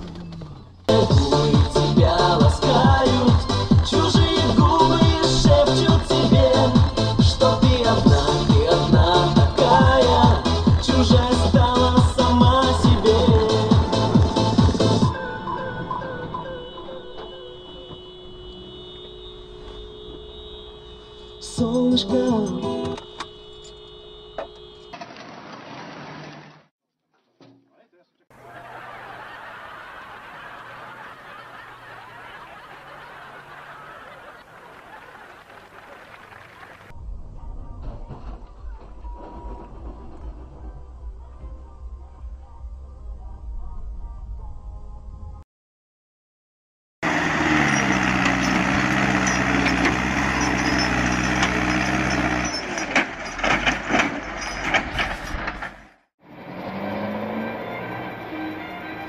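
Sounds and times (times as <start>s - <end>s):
wheels churning in snow: 25.0s - 26.6s, 28.4s - 36.9s, 47.0s - 55.9s
crowd shouting and laughing: 28.3s - 36.9s
tractor engine running hard: 47.0s - 59.0s.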